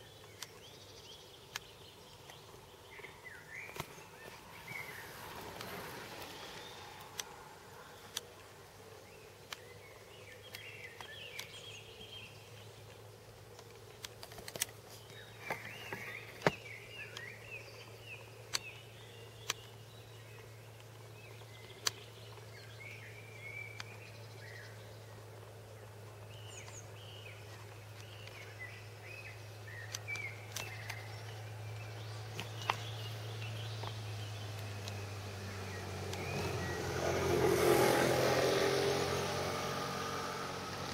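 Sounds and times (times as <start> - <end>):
small birds chirping: 0.0 - 40.9
sharp clicks: 0.2 - 0.7, 1.4 - 4.2, 5.4 - 8.5, 9.4 - 11.6, 12.8 - 17.3, 18.4 - 18.8, 19.4 - 19.8, 20.4 - 22.5, 29.7 - 35.1.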